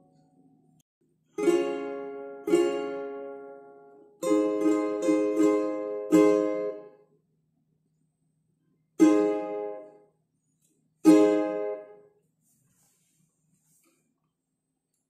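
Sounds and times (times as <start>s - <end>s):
ukulele strumming: 1.3s - 7.0s, 9.0s - 10.0s, 11.0s - 12.0s.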